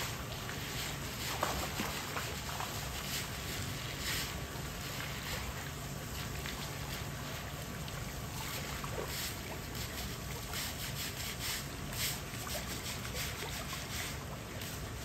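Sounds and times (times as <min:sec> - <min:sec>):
water running from a hose: 0:00.0 - 0:15.0
brush scrubbing rock: 0:09.1 - 0:14.9.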